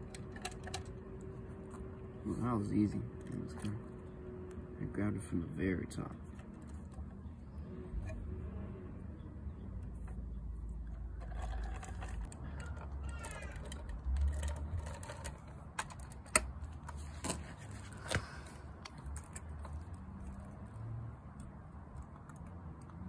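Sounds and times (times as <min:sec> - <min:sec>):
plastic toys clicking on concrete: 0:00.0 - 0:01.9, 0:09.7 - 0:23.0.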